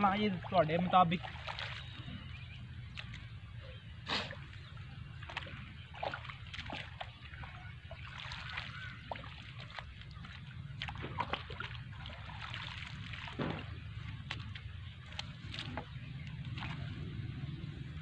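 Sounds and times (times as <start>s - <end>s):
mud and water splashing: 0.0s - 18.0s
hoe digging wet soil: 10.8s - 16.9s.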